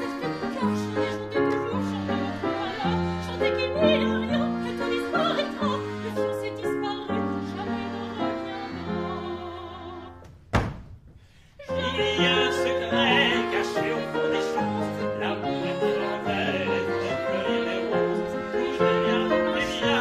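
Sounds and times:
operatic singing: 0.0s - 10.3s, 11.5s - 20.0s
piano accompaniment: 0.0s - 10.3s, 11.7s - 20.0s
short thump: 10.2s - 11.2s.

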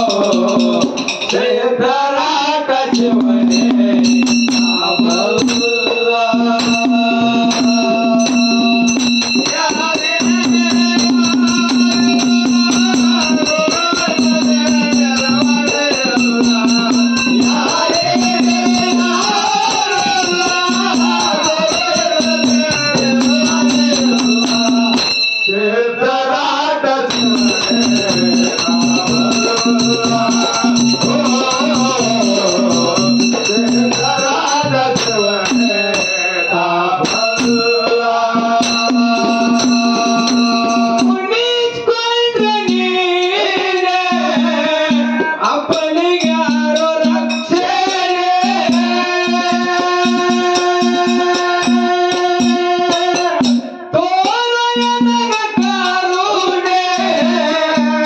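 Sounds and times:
jingling metal percussion: 0.0s - 58.0s
barrel drum beaten: 2.9s - 25.4s, 27.1s - 58.0s
large drum: 3.0s - 25.2s, 27.1s - 36.2s.

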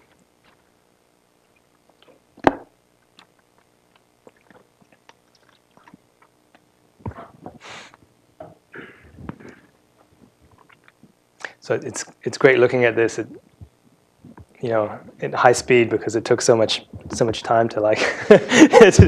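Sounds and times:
short hiss: 7.6s - 8.0s.

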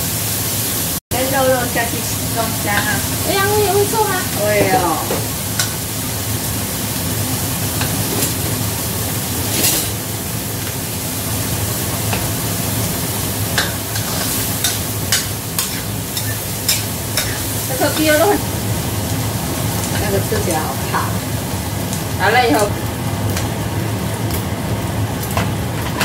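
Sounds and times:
meat sizzling in a wok: 0.0s - 26.0s
metal spatula scraping a wok: 9.4s - 10.0s, 13.6s - 18.4s.

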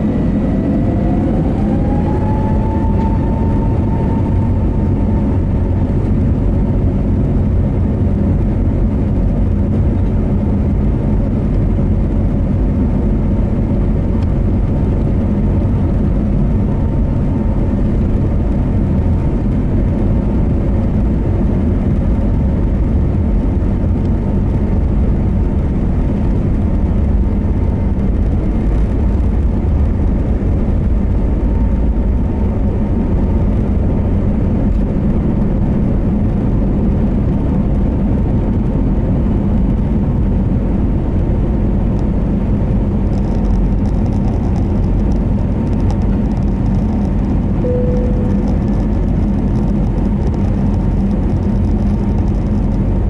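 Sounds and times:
jet engines rumbling in cabin: 0.0s - 53.0s
faint steady hum: 46.0s - 52.9s.

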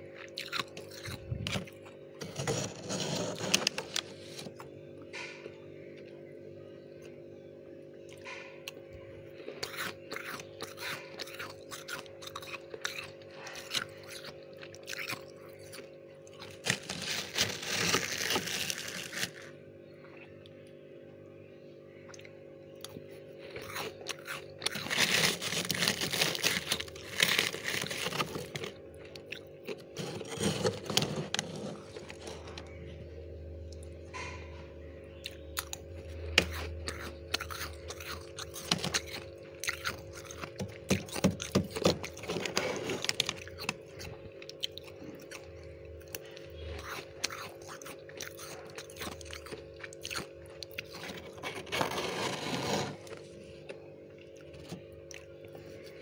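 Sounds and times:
frost crunching between teeth: 0.0s - 5.4s, 8.0s - 20.7s, 22.0s - 32.9s, 35.2s - 56.0s
steady low hum: 0.0s - 56.0s.

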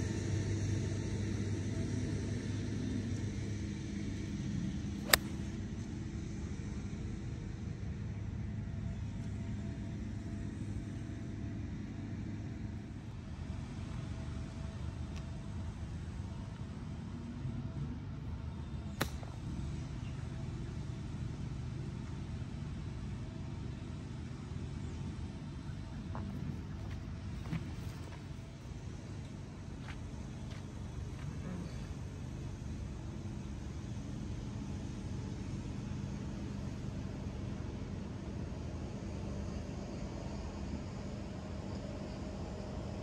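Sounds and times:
golf club striking ball: 5.0s - 5.5s, 19.0s - 19.3s.

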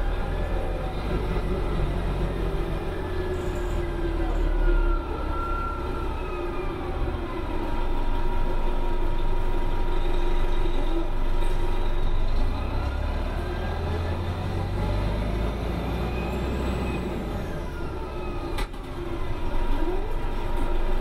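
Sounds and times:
bus engine rumble: 0.0s - 21.0s.

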